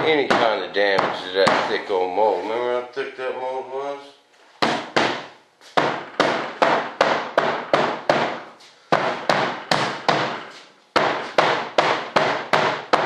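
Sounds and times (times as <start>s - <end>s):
mallet tapping on fibreglass mold: 11.0s - 13.0s.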